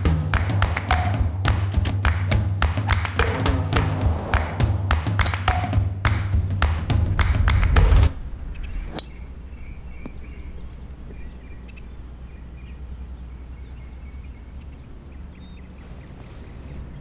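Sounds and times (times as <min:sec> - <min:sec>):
low steady rumble: 0:03.1 - 0:17.0
birds chirping: 0:07.7 - 0:17.0.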